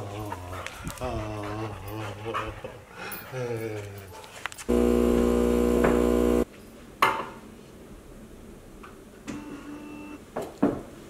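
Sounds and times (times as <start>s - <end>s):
coffee machine humming: 4.7s - 6.4s.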